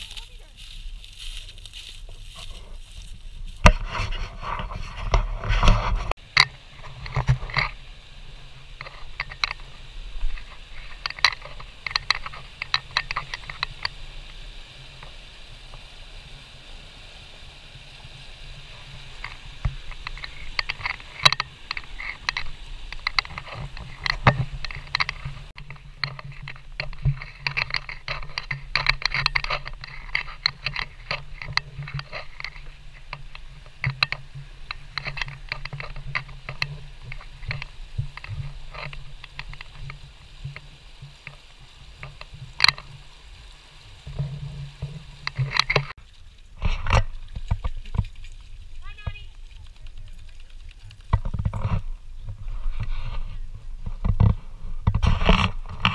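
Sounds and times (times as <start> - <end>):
small clicks and knocks: 8.8 - 14.0, 19.2 - 43.0, 44.1 - 53.2.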